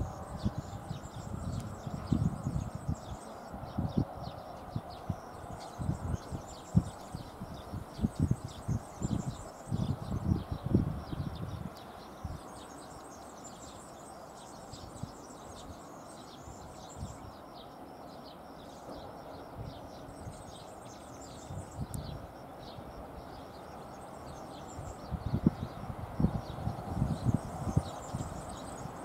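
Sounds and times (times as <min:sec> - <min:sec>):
small birds chirping and singing: 0:00.0 - 0:29.0.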